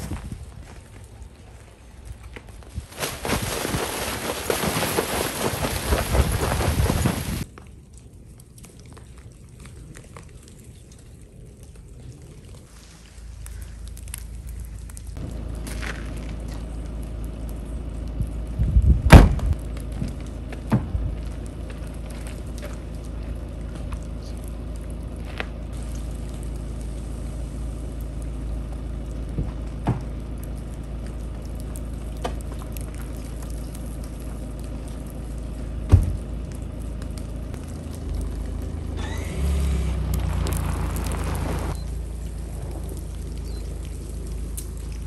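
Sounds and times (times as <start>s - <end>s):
low background rumble: 0.0s - 45.0s
car engine starting and running: 13.3s - 45.0s
car door shutting: 19.1s - 19.5s
car tailgate slamming: 19.1s - 19.5s.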